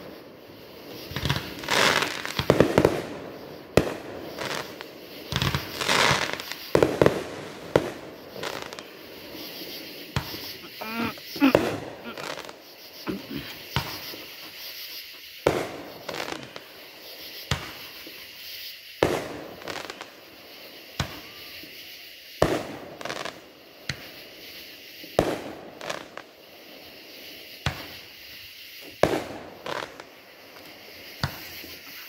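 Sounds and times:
fireworks shells bursting: 0:00.8 - 0:26.4.

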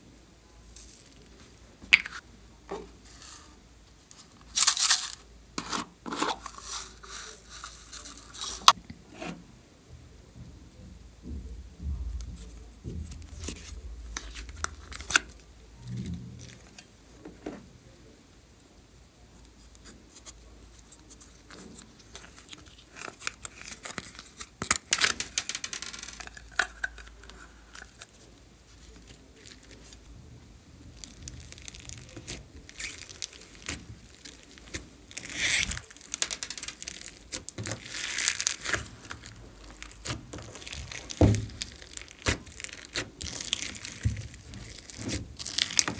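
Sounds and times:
plastic crinkling: 0:04.5 - 0:05.2, 0:06.1 - 0:08.8, 0:21.4 - 0:30.1, 0:30.8 - 0:45.9
modelling clay tearing: 0:30.9 - 0:45.9.

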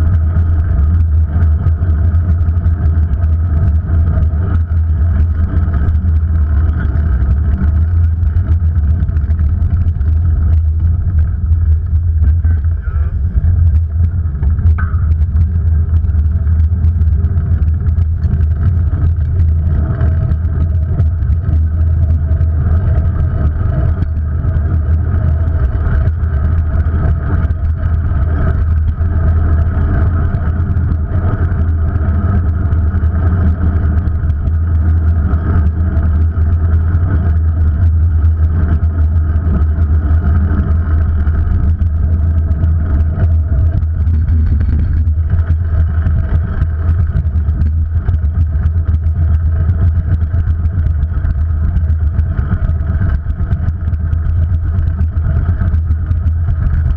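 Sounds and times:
wind and road rumble: 0:00.0 - 0:56.9.

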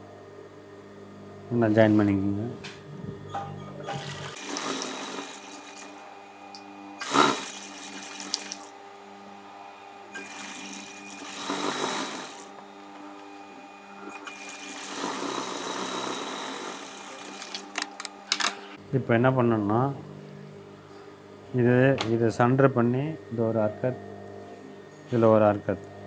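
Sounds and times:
steady machine hum: 0:00.0 - 0:26.0
sewing machine stitching: 0:07.0 - 0:08.5, 0:10.2 - 0:12.5.

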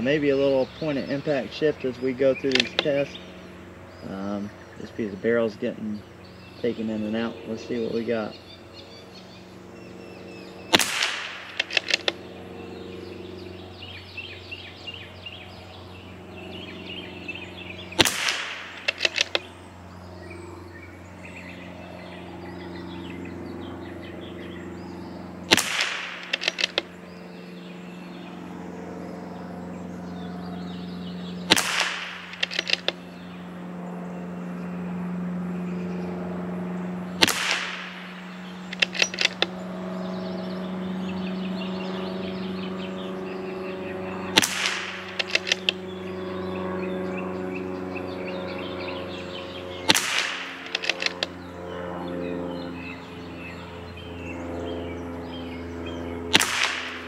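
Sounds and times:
birds chirping: 0:00.0 - 0:57.0
rifle bolt clicks: 0:02.5 - 0:02.9, 0:10.8 - 0:12.2, 0:18.0 - 0:19.5, 0:25.5 - 0:26.9, 0:31.5 - 0:33.0, 0:38.7 - 0:39.5, 0:44.4 - 0:45.8, 0:49.9 - 0:51.3
rifle shots: 0:10.7 - 0:12.2, 0:17.9 - 0:19.5, 0:25.5 - 0:26.9, 0:31.5 - 0:33.0, 0:37.2 - 0:39.5, 0:44.3 - 0:45.8, 0:49.8 - 0:51.3, 0:56.3 - 0:57.0.

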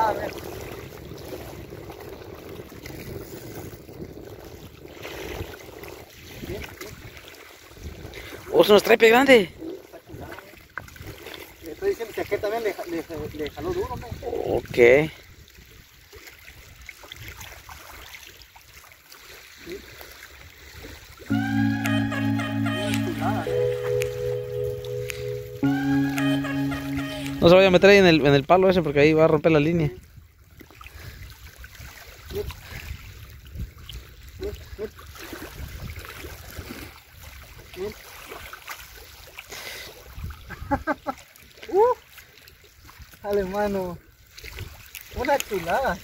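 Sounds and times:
wind rumble on microphone: 0:00.0 - 0:08.2, 0:31.5 - 0:36.9
water lapping at shore: 0:00.0 - 0:29.0, 0:29.8 - 0:46.0
light ticks and splashes: 0:00.1 - 0:13.8, 0:14.7 - 0:21.2, 0:30.3 - 0:46.0.

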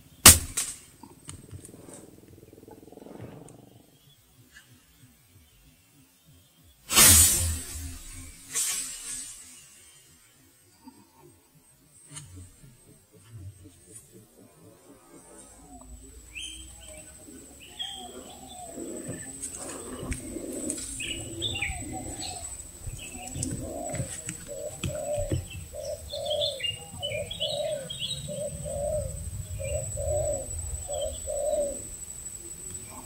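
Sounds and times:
small birds chirping: 0:00.0 - 0:06.9, 0:07.6 - 0:33.0
dove cooing: 0:01.0 - 0:04.1, 0:12.2 - 0:33.0.

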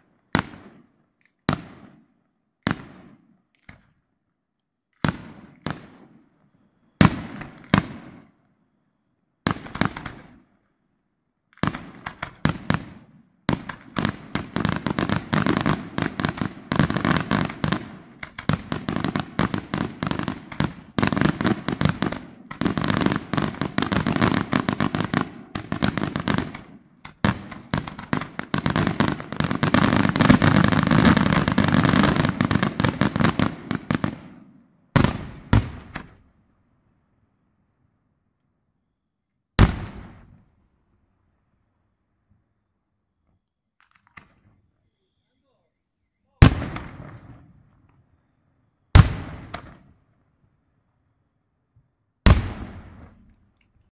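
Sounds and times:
fireworks bangs and crackles: 0:00.0 - 0:04.0, 0:04.9 - 0:08.4, 0:09.4 - 0:10.5, 0:11.5 - 0:36.4, 0:39.6 - 0:40.7, 0:46.3 - 0:48.1, 0:48.9 - 0:50.2, 0:52.2 - 0:53.6.

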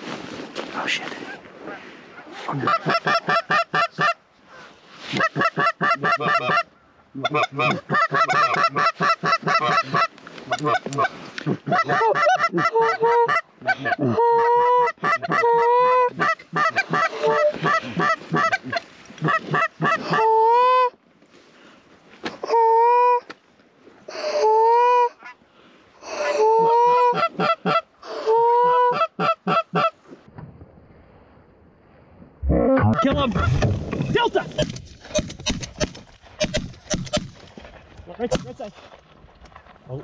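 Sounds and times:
goose call clucks: 0:02.5 - 0:21.0, 0:26.1 - 0:30.0
goose call honks: 0:07.2 - 0:11.1.

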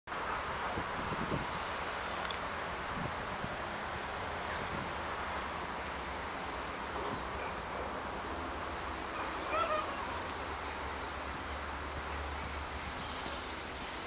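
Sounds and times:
distant diesel locomotive rumble: 0:00.1 - 0:14.0
wind on microphone: 0:00.6 - 0:03.6.

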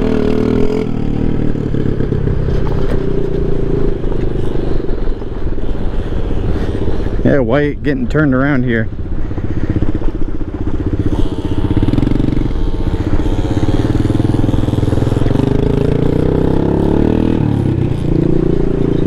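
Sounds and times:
scooter engine revving: 0:00.0 - 0:07.3, 0:09.6 - 0:19.0.

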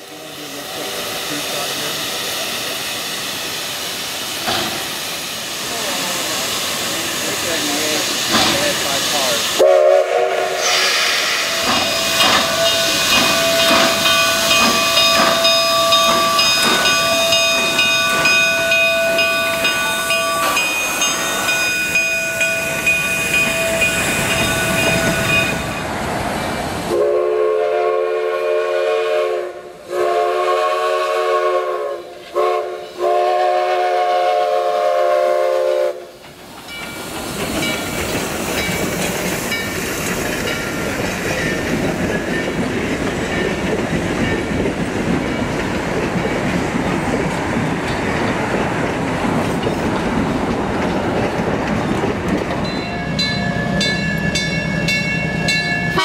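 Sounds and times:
steam hissing: 0:00.0 - 0:52.2
steam locomotive whistle: 0:09.6 - 0:25.7, 0:26.9 - 0:36.2.

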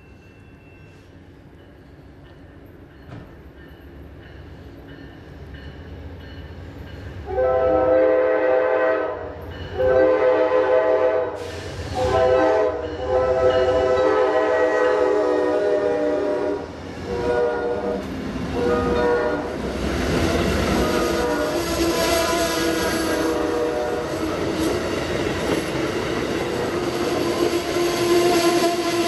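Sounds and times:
train cars rolling on rails: 0:00.0 - 0:29.0
train horn blasts: 0:07.2 - 0:24.7, 0:26.9 - 0:29.0.

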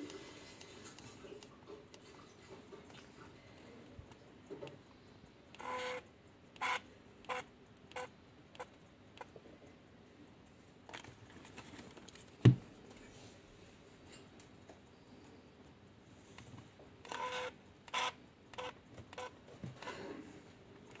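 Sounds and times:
flash zoom motor whirring: 0:17.1 - 0:19.3.

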